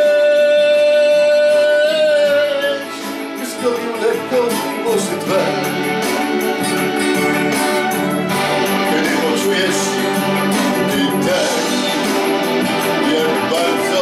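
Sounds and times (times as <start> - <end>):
acoustic guitar strumming: 0.0 - 14.0
man singing: 0.0 - 14.0.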